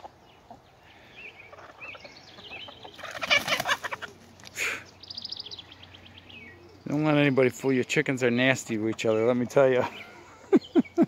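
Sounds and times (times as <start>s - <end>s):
hens clucking and squawking: 0.0s - 4.6s
high chattering calls: 0.0s - 11.0s
wing flapping: 3.0s - 4.4s.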